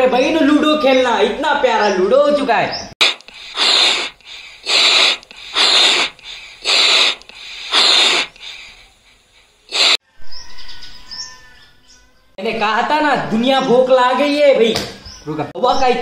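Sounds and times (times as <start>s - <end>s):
hissing bursts of rushing air: 3.0s - 10.0s.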